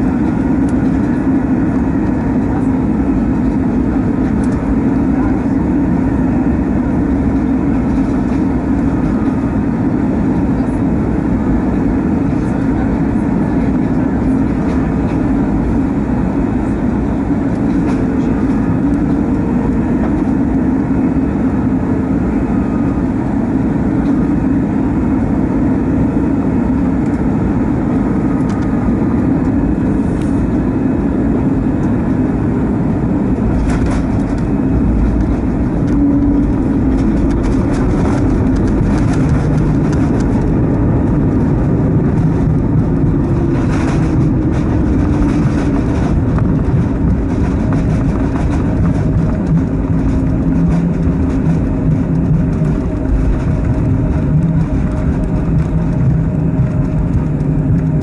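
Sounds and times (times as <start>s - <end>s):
airplane cabin engine rush: 0.0s - 58.0s
landing wheels rumbling: 33.3s - 58.0s.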